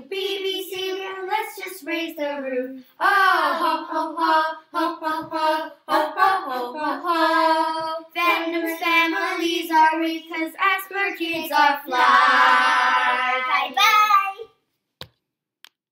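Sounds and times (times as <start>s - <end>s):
child singing: 0.0s - 14.6s.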